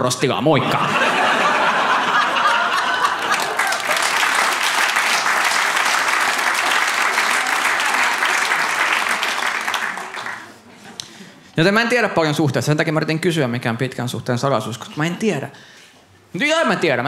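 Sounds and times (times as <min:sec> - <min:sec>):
audience applauding: 0:02.2 - 0:10.7.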